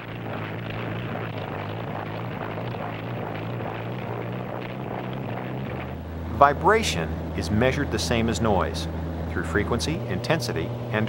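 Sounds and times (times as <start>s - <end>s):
helicopter engine and rotor: 5.9s - 11.0s.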